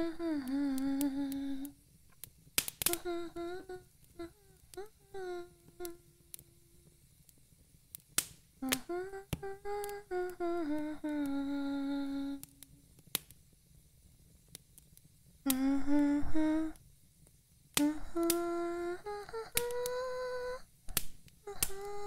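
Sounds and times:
woman humming: 0.0 - 1.8, 2.8 - 7.0, 8.6 - 12.7, 15.5 - 16.8, 17.8 - 20.7, 21.4 - 22.0.

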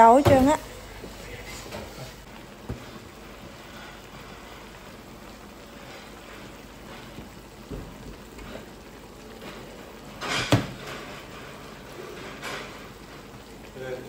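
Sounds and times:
vegetables sizzling in a wok: 0.0 - 14.0
loud knock in wok: 10.5 - 10.8.

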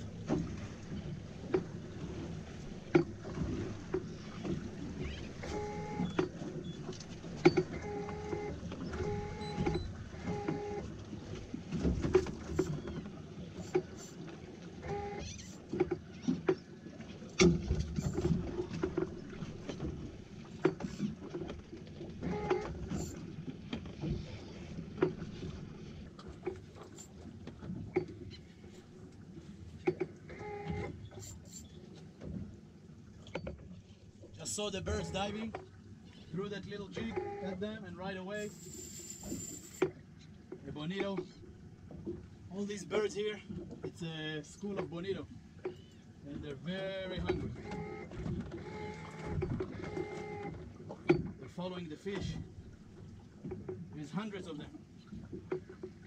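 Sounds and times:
water slapping against boat hull: 0.0 - 38.4, 39.1 - 56.0
knocks and clicks from boat: 0.0 - 56.0
short beeps: 7.5 - 10.8, 22.4 - 23.2, 37.0 - 37.6, 38.4 - 39.8.

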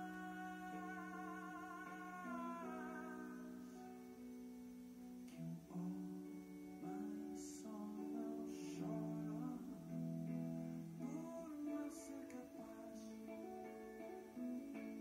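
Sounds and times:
woman singing: 0.0 - 3.6
electric guitar: 0.0 - 15.0.

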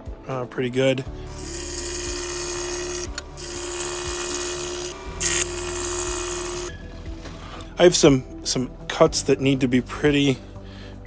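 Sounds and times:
scroll saw running: 1.3 - 6.7.

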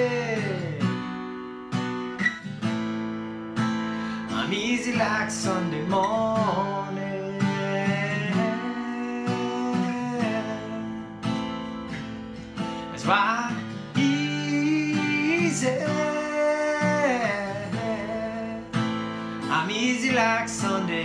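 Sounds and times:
man singing wordlessly: 0.0 - 1.2, 4.3 - 11.3, 12.9 - 21.0
acoustic guitar strumming: 0.0 - 21.0.

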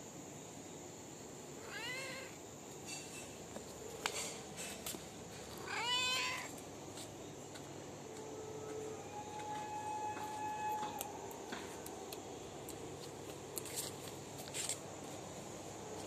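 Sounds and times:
cat meowing: 1.6 - 2.4, 5.6 - 6.5.

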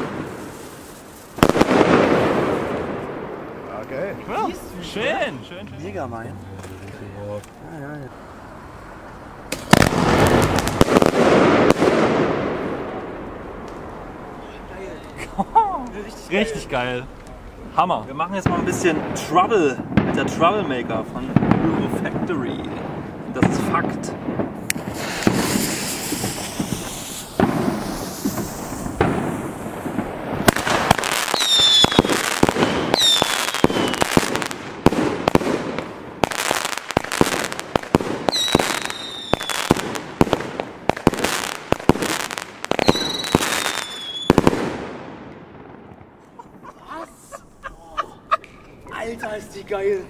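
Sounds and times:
firework shots and bangs: 0.0 - 5.2, 9.5 - 14.9, 18.2 - 46.6
firework crackle: 0.0 - 47.7
falling firework whistles: 24.8 - 34.5, 36.4 - 40.0, 41.2 - 44.7.

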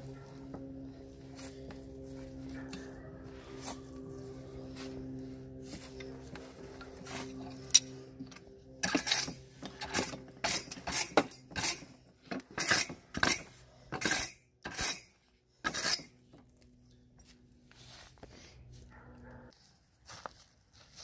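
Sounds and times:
tongs scraping and clanking on steel: 5.6 - 16.2.

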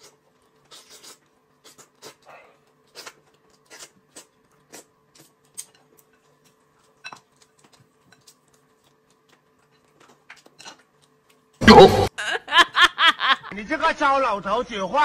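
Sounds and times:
chewing smacks: 0.1 - 11.6.

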